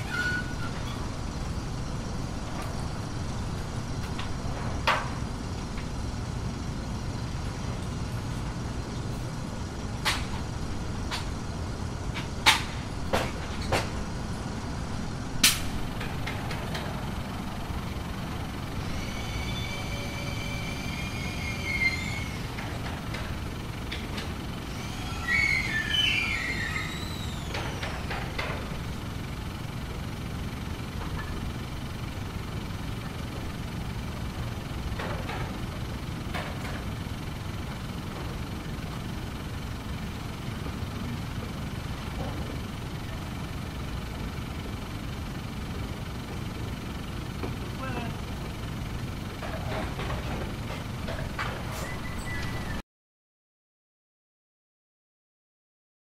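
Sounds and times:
high-pitched squealing whine: 0.0 - 3.2, 17.9 - 23.2, 24.6 - 28.5, 51.6 - 52.8
construction machinery engine rumble: 0.0 - 52.8.

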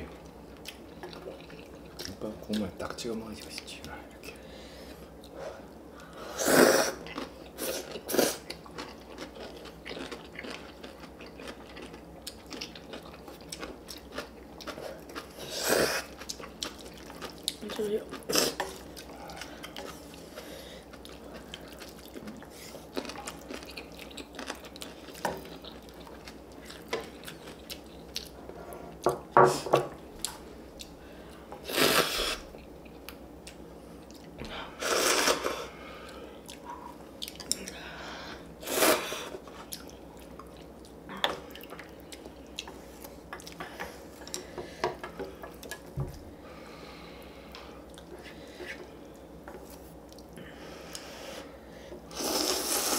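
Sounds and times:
chewing: 0.2 - 2.6, 7.0 - 29.0, 36.0 - 37.8, 39.4 - 46.0.

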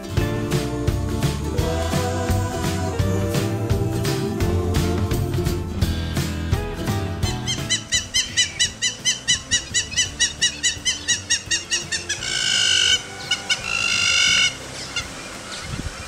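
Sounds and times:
bird yipping calls: 7.2 - 16.0.

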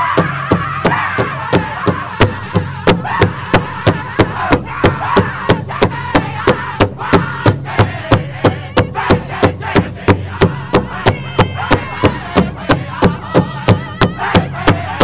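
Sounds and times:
big drum beating: 0.0 - 15.0
group singing: 0.0 - 15.0.

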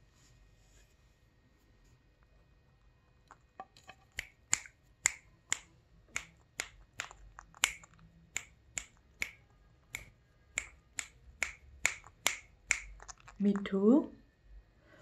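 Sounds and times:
parakeet beak clicking: 4.1 - 13.7.

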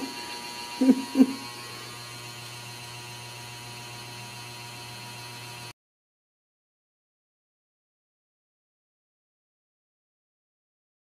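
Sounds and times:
steady electrical hum: 0.0 - 5.7
short vocal sounds: 0.8 - 1.8.

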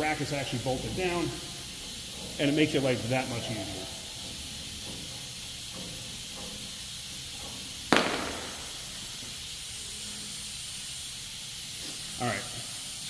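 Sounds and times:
steady hiss: 0.0 - 13.0
sharp metal knock: 7.9 - 8.8.

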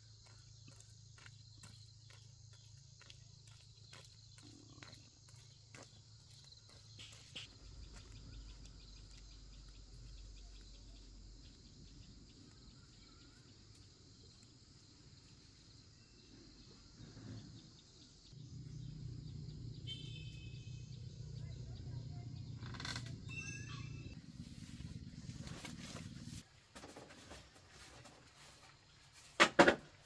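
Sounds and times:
insect chirring: 22.4 - 24.2.

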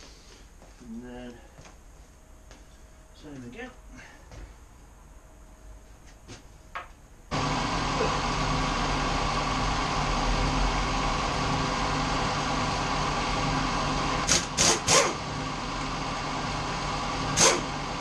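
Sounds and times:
machine motor humming: 7.3 - 18.0.

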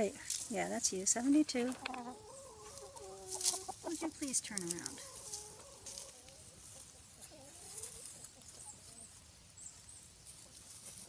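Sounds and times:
chickens clucking softly: 1.5 - 11.0
faint murmuring chicken calls: 1.6 - 4.2, 4.8 - 11.0.

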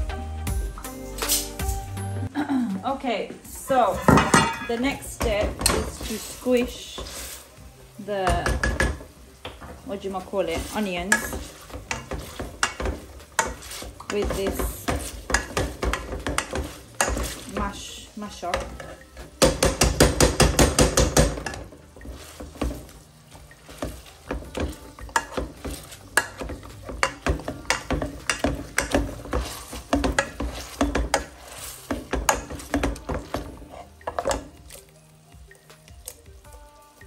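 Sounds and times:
potato masher knocking on metal pot: 10.6 - 17.8, 18.4 - 21.7, 23.7 - 34.5.

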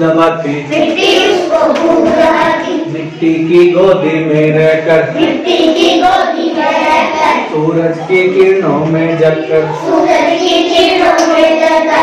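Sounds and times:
children chanting in chorus: 0.7 - 3.0, 5.1 - 7.5, 9.4 - 12.0.

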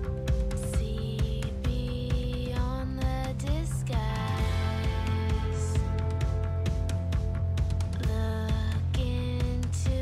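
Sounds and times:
background music with bass and beat: 0.0 - 10.0.

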